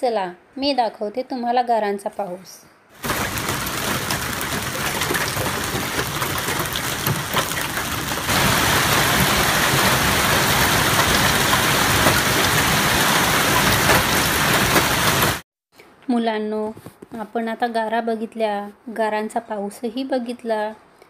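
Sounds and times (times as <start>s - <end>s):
hail and rain falling hard: 3.0s - 15.4s.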